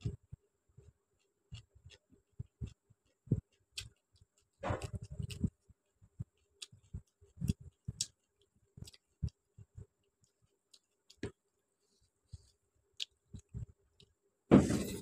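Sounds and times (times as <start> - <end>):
wet chewing mouth noises: 1.2 - 11.4.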